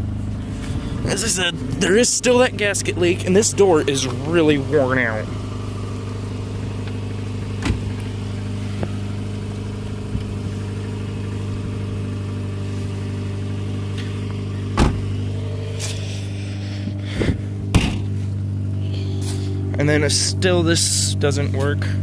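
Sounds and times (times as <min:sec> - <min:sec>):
car engine idling: 0:00.0 - 0:22.0
car door knocks and clunks: 0:07.4 - 0:08.1, 0:14.6 - 0:15.2, 0:17.3 - 0:18.2.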